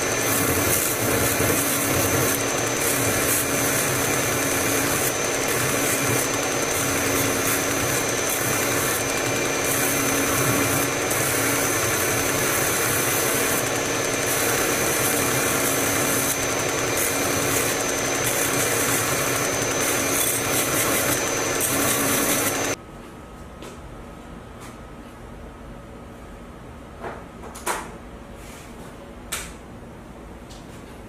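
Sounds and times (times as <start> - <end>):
belt grinder motor hum: 0.0 - 22.8
steel grinding on belt: 0.0 - 22.8.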